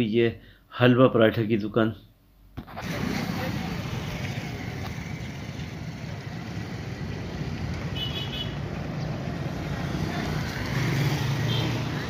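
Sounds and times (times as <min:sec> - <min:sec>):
road traffic rumble: 0:02.6 - 0:12.0.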